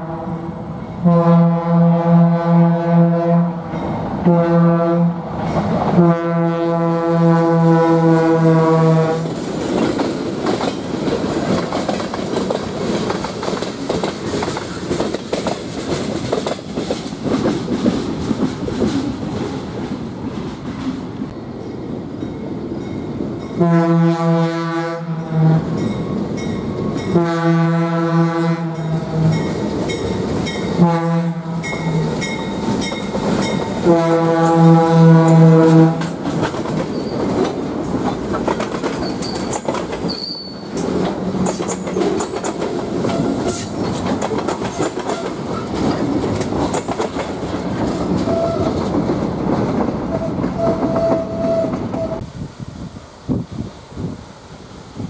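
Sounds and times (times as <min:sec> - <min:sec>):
locomotive air horn blasts: 0:00.0 - 0:05.3, 0:05.9 - 0:09.3, 0:23.6 - 0:25.8, 0:27.1 - 0:29.5, 0:30.7 - 0:32.1, 0:33.8 - 0:36.1, 0:48.3 - 0:48.8, 0:50.1 - 0:52.3
train rumble and rail noise: 0:00.0 - 0:55.0.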